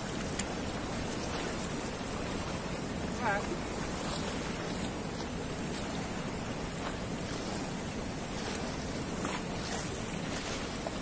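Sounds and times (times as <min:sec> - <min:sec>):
turbulent river water rushing: 0:00.0 - 0:11.0.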